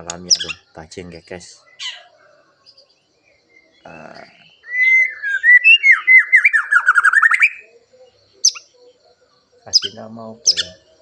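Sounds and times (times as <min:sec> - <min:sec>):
high bird chip: 0:00.0 - 0:00.8, 0:09.7 - 0:10.8
bird singing whistled notes: 0:00.0 - 0:11.0.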